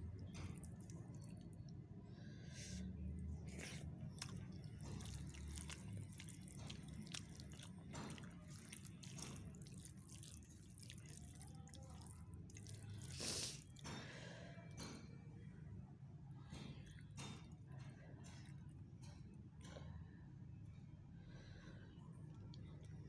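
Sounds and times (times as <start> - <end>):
low steady hum: 0.0 - 23.0
fingers mixing rice on a plate: 3.4 - 14.3.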